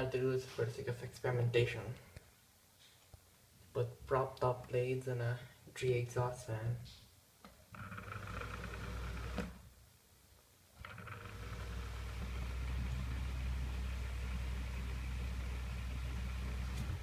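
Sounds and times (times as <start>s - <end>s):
exhaust fan humming and whirring: 10.8s - 17.0s.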